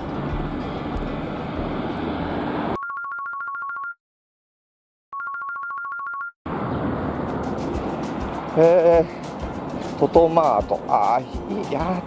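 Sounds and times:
street noise: 0.0s - 2.8s, 6.5s - 12.0s
electronic telephone ring: 2.8s - 4.0s, 5.2s - 6.4s.

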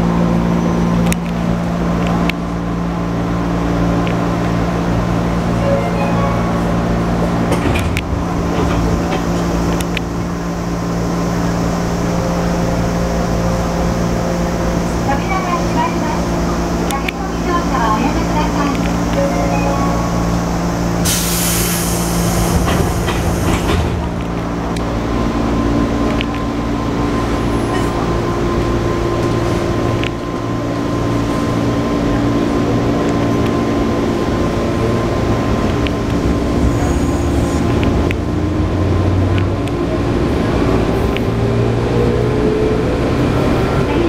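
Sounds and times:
wheel-on-rail noise: 0.6s - 44.0s
loud hissing burst: 21.0s - 23.7s.

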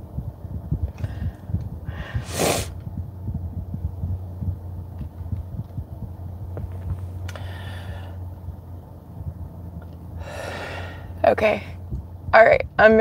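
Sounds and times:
low hum inside car: 0.0s - 13.0s
sharp breath: 1.0s - 2.8s, 7.3s - 8.2s, 10.2s - 11.2s
person sniffing: 2.0s - 2.8s.

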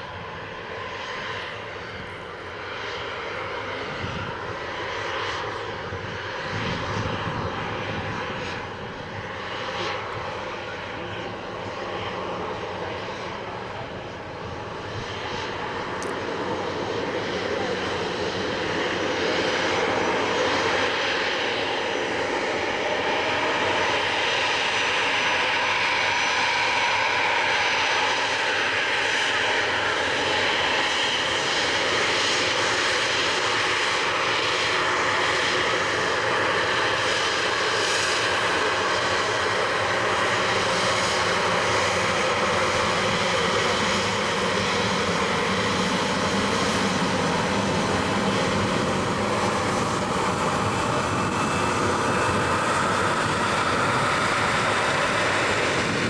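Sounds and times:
jet engines whining: 0.0s - 56.0s.

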